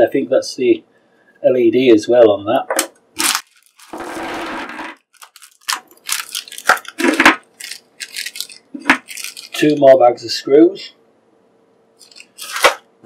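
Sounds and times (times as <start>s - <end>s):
plastic bag ripping: 3.2s - 9.8s, 12.0s - 12.9s
plastic bag crinkling: 3.2s - 9.9s, 12.0s - 12.9s.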